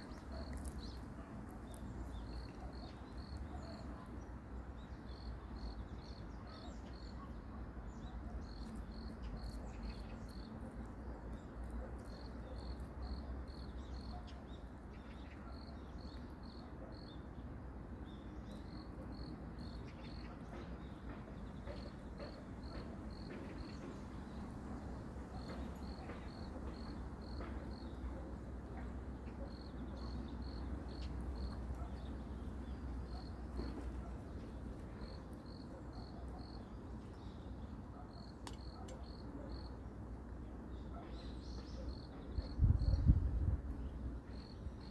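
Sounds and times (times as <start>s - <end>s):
cat chewing: 0.0s - 2.6s.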